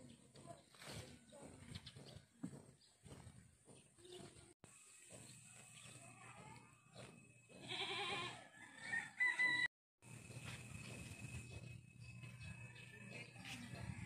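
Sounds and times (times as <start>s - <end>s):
rooster crowing: 8.0s - 9.7s.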